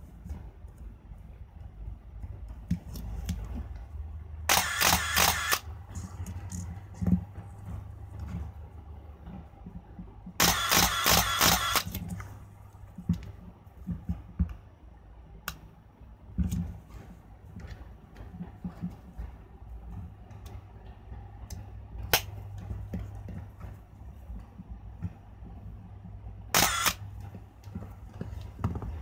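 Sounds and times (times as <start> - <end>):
rapid camera shutter clicks: 4.5 - 5.7, 10.4 - 12.0, 26.6 - 27.0.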